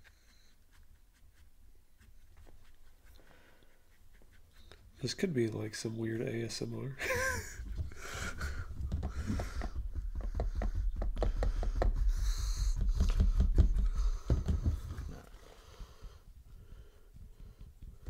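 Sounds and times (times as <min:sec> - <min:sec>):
paintbrush strokes on canvas: 0:00.0 - 0:06.8.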